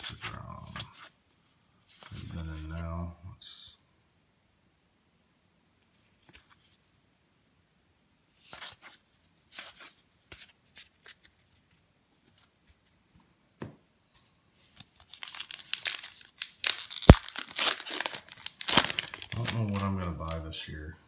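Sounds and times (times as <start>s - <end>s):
wrapper crinkling and tearing: 14.8s - 20.4s.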